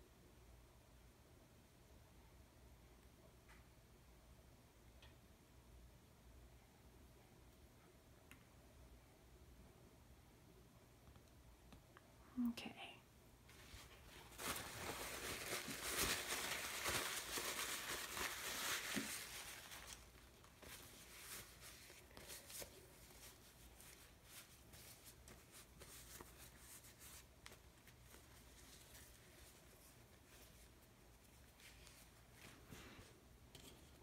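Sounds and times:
paper rustling and crinkling: 13.5 - 33.0.

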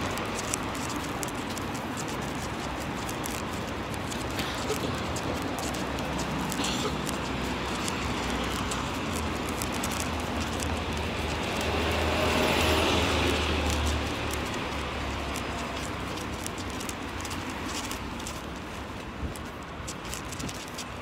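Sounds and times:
passing vehicle rumble: 0.0 - 18.4
outdoor noise: 0.0 - 21.0.

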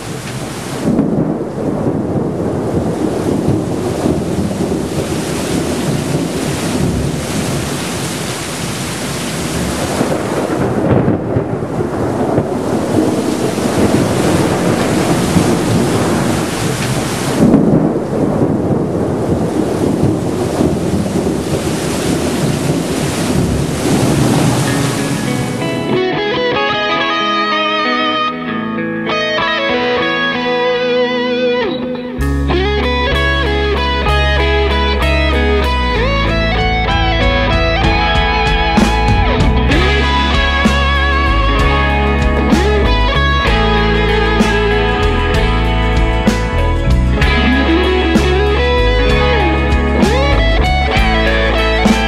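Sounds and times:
thunder rumbling: 0.0 - 27.2, 29.8 - 52.0
heavy rain: 0.0 - 52.0.

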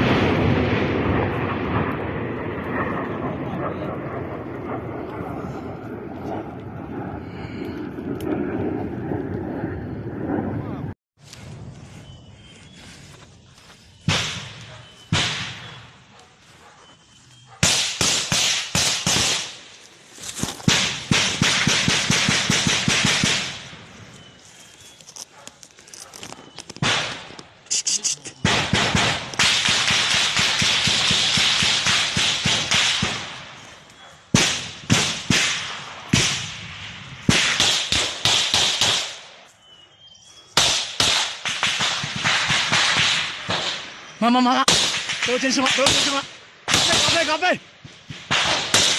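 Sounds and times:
automatic gunfire: 17.6 - 19.6, 20.7 - 23.6, 28.4 - 33.3, 37.3 - 39.2, 44.7 - 47.4, 48.1 - 48.9.

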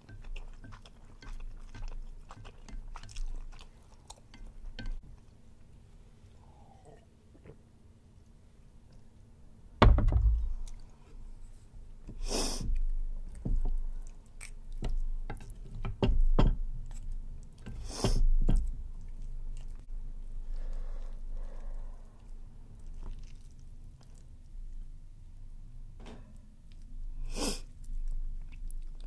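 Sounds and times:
chopsticks stirring food in bowl: 0.0 - 5.1.

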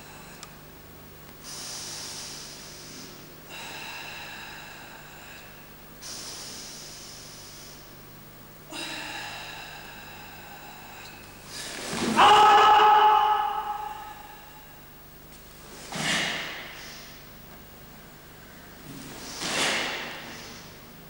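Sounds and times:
steady low hum: 0.0 - 21.0
forceful breathy exhalations: 15.7 - 17.3, 18.5 - 20.9.

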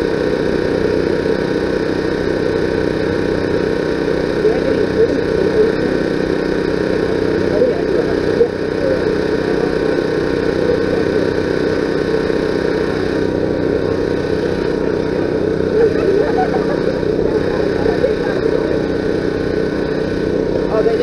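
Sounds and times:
engine humming: 0.0 - 21.0
faint voices: 3.0 - 21.0.

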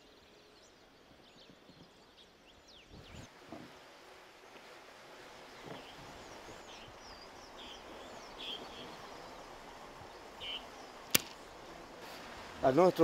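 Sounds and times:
birds chirping: 0.0 - 3.3, 5.4 - 13.0
faint hiss: 3.5 - 13.0.

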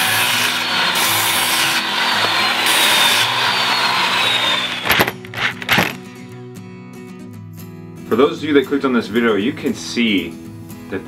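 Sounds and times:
power tool grinding wood: 0.0 - 6.0.

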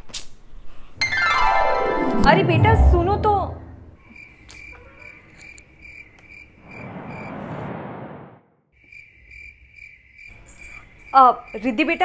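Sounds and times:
cricket chirping: 4.0 - 7.4, 8.8 - 12.0
rushing whoosh: 6.7 - 8.5.

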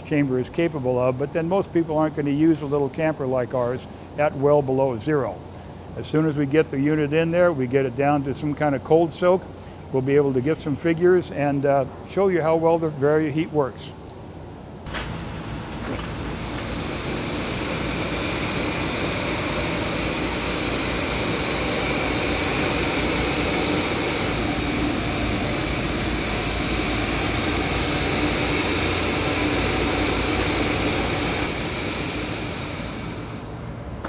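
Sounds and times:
truck rushing mechanical noise: 14.9 - 34.0.

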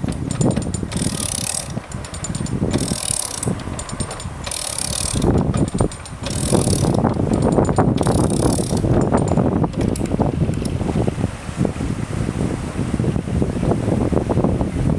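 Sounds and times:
ratchet clicks: 0.0 - 10.7
water rushing: 0.0 - 14.6.

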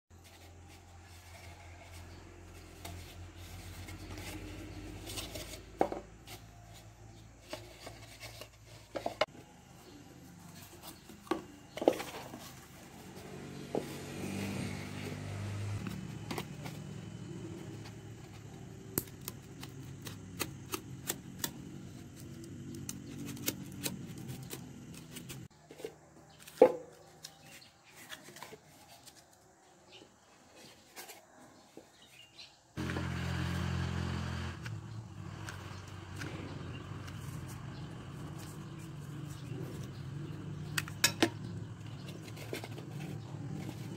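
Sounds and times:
styrofoam cup and cardboard rubbing: 0.1 - 21.4.

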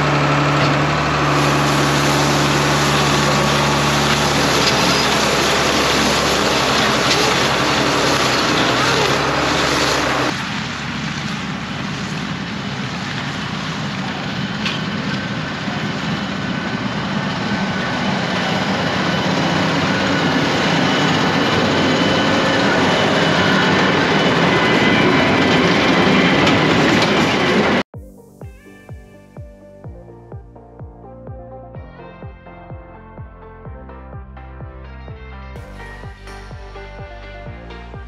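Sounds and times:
tractor running under load: 0.0 - 27.8
music: 27.9 - 38.0.

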